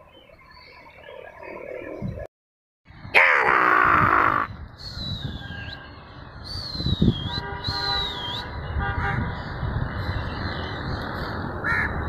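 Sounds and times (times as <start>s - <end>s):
traffic rumble: 2.9s - 12.0s
distant vehicle horns tooting: 7.2s - 9.3s.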